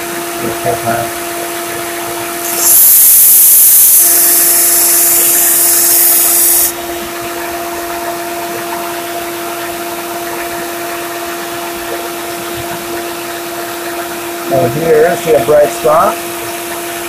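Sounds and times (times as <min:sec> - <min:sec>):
motor hum: 0:00.0 - 0:15.4
blade grinding on sander belt: 0:02.4 - 0:06.8.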